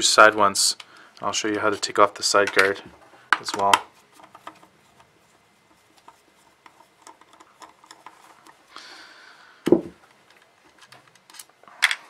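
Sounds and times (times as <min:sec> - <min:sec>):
small tools clicking and scraping: 0:06.0 - 0:08.6.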